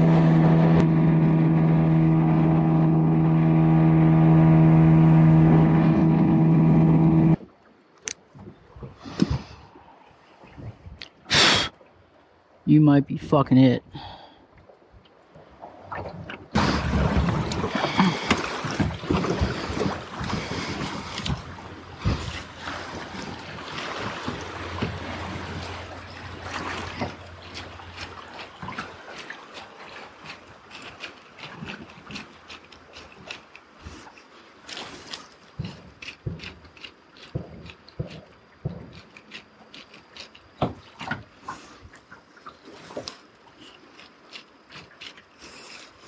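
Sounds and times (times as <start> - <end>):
rushing river water: 15.2 - 37.1
wind buffeting microphone: 16.5 - 27.4.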